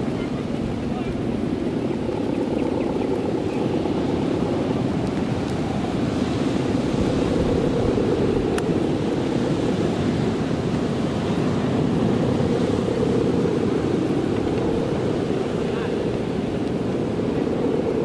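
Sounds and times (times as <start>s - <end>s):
kite hummers droning: 0.0s - 18.0s
wind rush: 0.0s - 18.0s.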